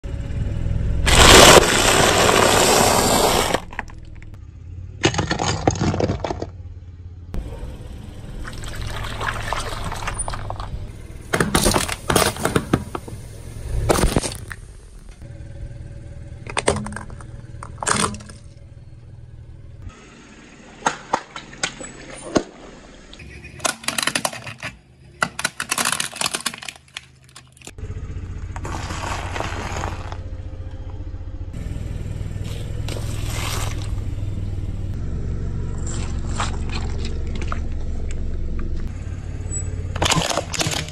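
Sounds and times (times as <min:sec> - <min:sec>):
car running slowly: 0:00.0 - 0:21.7, 0:27.6 - 0:40.9
tyre crushing objects: 0:01.1 - 0:04.0, 0:05.0 - 0:06.6, 0:28.5 - 0:30.2.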